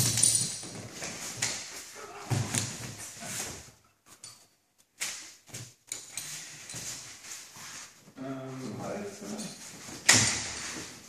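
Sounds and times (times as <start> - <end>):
clothing rustling: 0.0 - 11.0
thuds on padded mats: 2.1 - 3.6.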